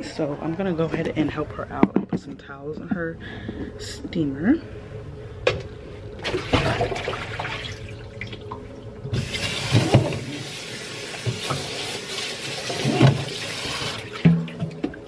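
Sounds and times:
water running from a tap: 9.2s - 14.2s.

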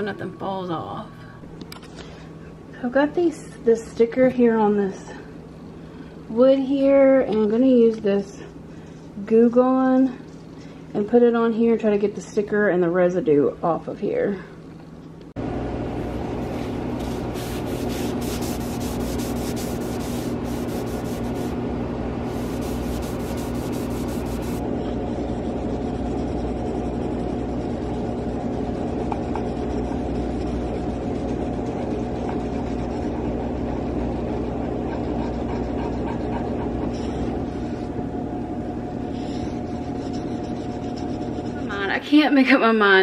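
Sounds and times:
steady low hum: 12.8s - 43.0s
paper towel rubbing on wood: 16.4s - 21.5s, 22.3s - 24.6s.

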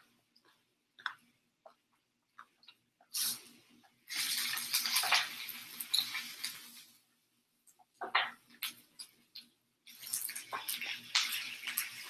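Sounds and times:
meat sizzling on a grill: 4.1s - 7.0s, 9.8s - 12.0s.

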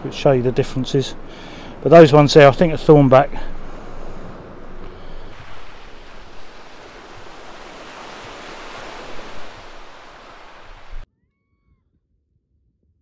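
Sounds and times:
surf washing on beach: 0.0s - 11.0s.

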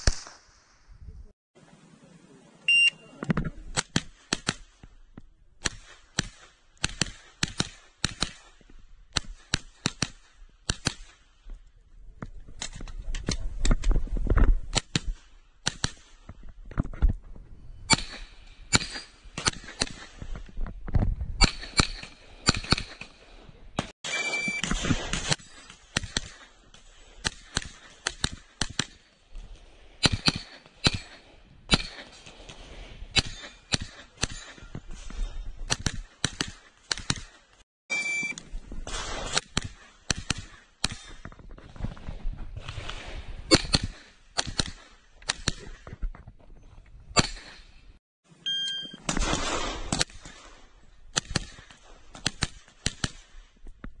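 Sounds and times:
carbine gunshots: 49.0s - 53.4s.

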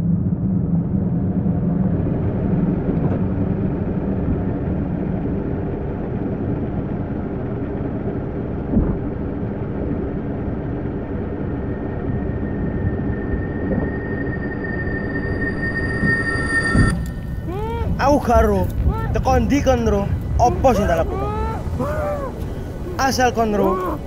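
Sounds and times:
faint hum: 0.0s - 24.0s
low rumble: 0.0s - 24.0s
thud: 8.7s - 9.0s.

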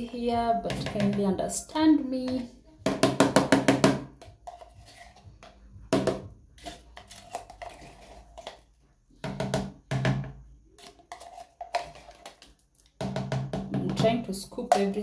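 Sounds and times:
plastic spoon scraping yogurt cup: 4.2s - 5.7s, 6.6s - 8.8s, 10.7s - 12.9s.

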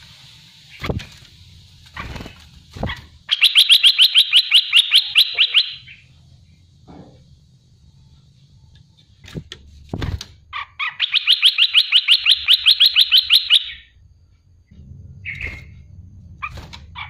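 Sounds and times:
bird chattering: 3.3s - 6.1s, 10.6s - 13.8s.

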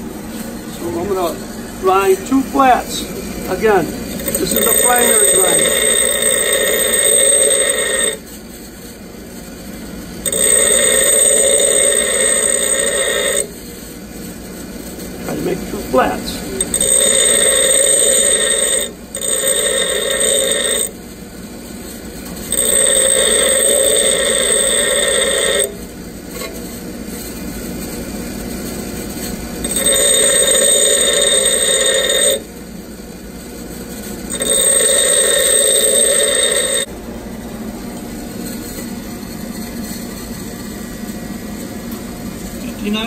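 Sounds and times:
bench grinder humming: 0.8s - 8.2s, 10.2s - 13.5s, 15.3s - 21.0s, 22.5s - 25.8s, 29.6s - 32.5s, 34.3s - 36.9s
drill bit grinding on wheel: 3.4s - 8.2s, 10.2s - 13.5s, 15.9s - 21.0s, 22.5s - 25.8s, 29.6s - 32.5s, 34.3s - 36.9s.

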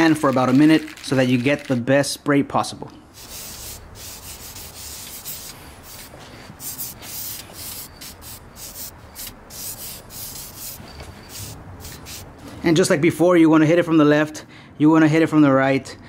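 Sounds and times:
aerosol spray hissing: 3.2s - 12.4s.

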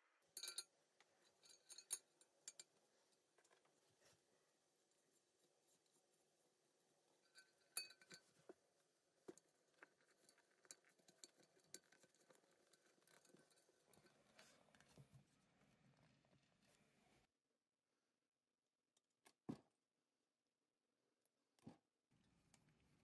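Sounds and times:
ringing metal clink: 0.4s - 0.6s.

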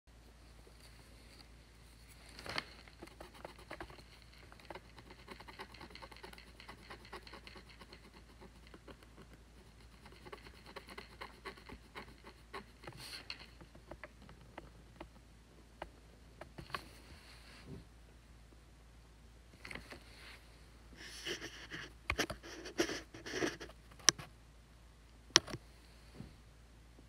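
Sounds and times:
tool scratching paper: 2.8s - 14.0s, 21.0s - 23.8s.

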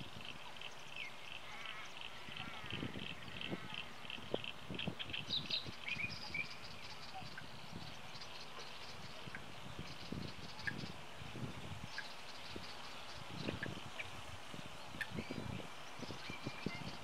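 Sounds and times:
birds chirping: 0.0s - 17.0s
whistled bird notes: 16.1s - 17.0s.

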